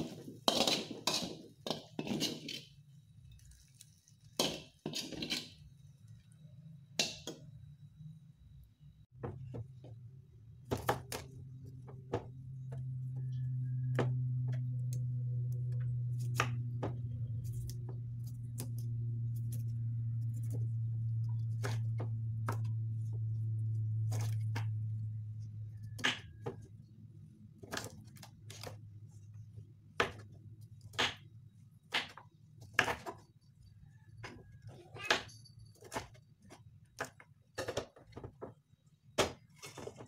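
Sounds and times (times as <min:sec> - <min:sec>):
low steady hum: 0:05.6 - 0:27.8.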